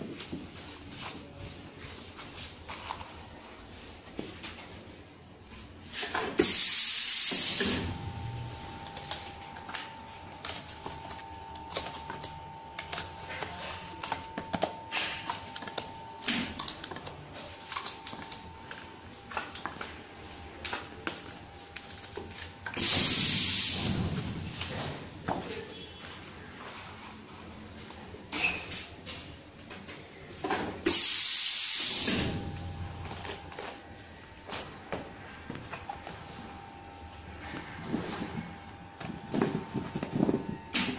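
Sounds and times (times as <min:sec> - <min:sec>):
air cylinders hissing: 0:05.9 - 0:25.1, 0:30.8 - 0:40.9
faint steady machine hum: 0:07.6 - 0:28.4, 0:32.0 - 0:40.9.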